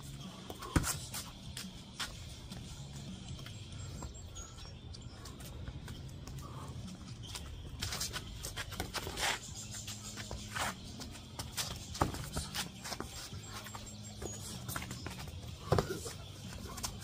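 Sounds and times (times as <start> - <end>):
sneakers scuffing on paving stones: 0.6 - 2.8, 7.2 - 17.0.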